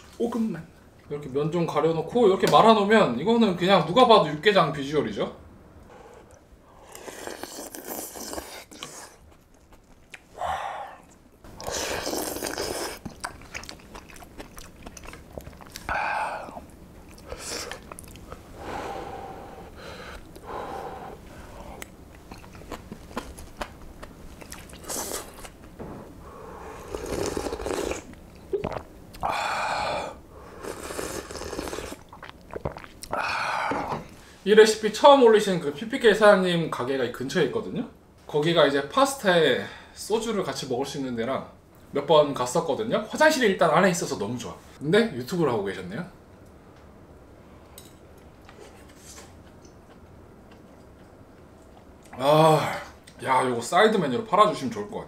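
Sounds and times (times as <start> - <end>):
chewing: 6.2 - 18.4, 21.8 - 25.6, 30.6 - 33.2, 48.2 - 52.2
slurping noodles: 6.8 - 9.3, 10.8 - 18.0, 24.5 - 25.5, 26.5 - 28.8, 29.9 - 33.9
sipping broth: 10.1 - 18.4, 26.2 - 34.0.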